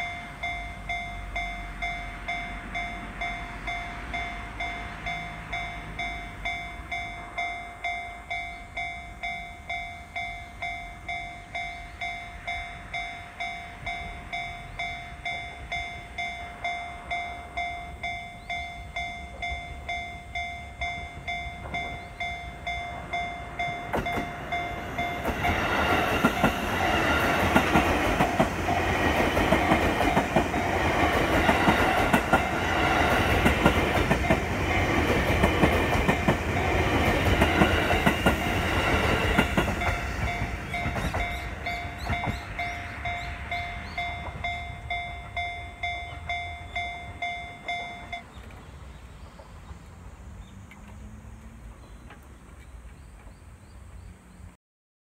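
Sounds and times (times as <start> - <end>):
level crossing bell ringing: 0.0 - 28.4, 35.8 - 48.3
train rumble and wheel clatter: 0.0 - 54.5.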